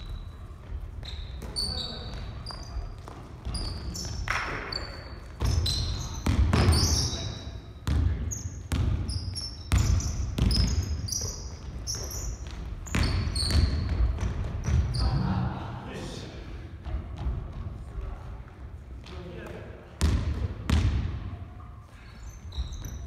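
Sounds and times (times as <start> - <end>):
sneakers squeaking: 0.0 - 15.4, 20.0 - 23.0
basketball bouncing on wooden floor: 5.3 - 7.0, 7.8 - 15.0, 16.8 - 17.7, 20.0 - 21.1.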